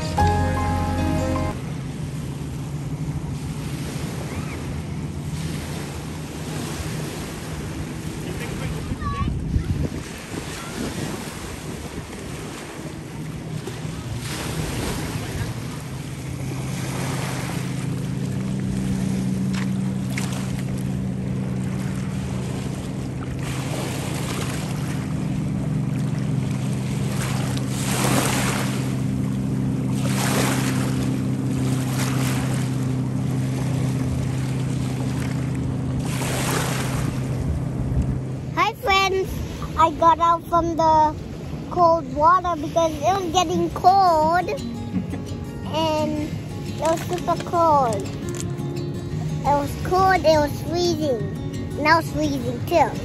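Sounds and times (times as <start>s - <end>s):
motorboat engine humming: 0.0s - 53.0s
water lapping: 1.4s - 53.0s
wind on microphone: 7.7s - 13.2s, 36.0s - 38.5s.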